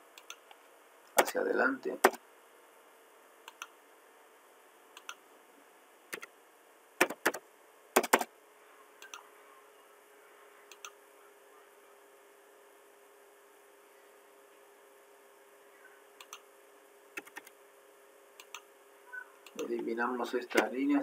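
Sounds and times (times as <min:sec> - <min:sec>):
computer mouse clicking: 0:00.2 - 0:00.4, 0:03.5 - 0:03.7, 0:05.0 - 0:05.2, 0:09.0 - 0:09.2, 0:10.7 - 0:11.0, 0:16.2 - 0:16.4, 0:17.2 - 0:17.5, 0:18.4 - 0:18.7
keyboard keystrokes: 0:17.2 - 0:17.5.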